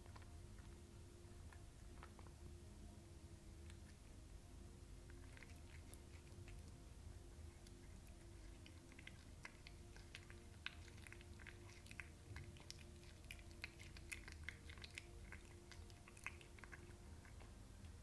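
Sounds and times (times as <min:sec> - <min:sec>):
cat chewing wet clicks: 0:05.1 - 0:06.8, 0:07.4 - 0:18.0.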